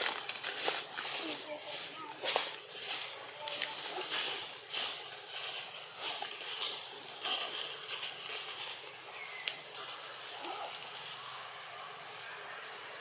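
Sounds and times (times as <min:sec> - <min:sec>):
rustles and clicks: 0:00.0 - 0:11.4
faint high chirps: 0:05.2 - 0:13.0.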